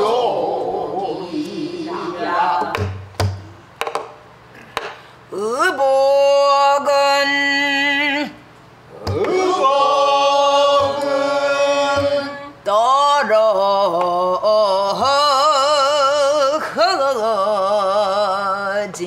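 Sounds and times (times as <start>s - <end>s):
woman singing with vibrato: 0.0s - 3.0s.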